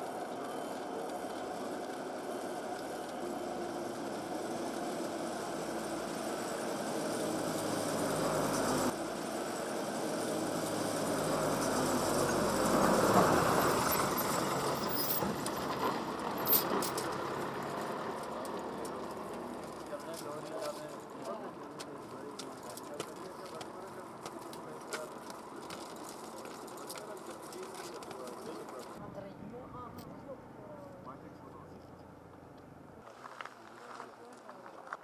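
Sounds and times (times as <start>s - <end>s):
cable car machinery hum and rumble: 0.0s - 21.2s.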